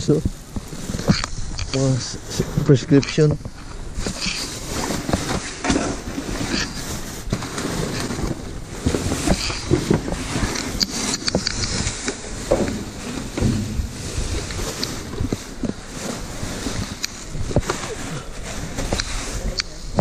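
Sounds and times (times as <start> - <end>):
plastic bags rustling: 0.0 - 20.0
small knocks and bumps: 7.3 - 17.9.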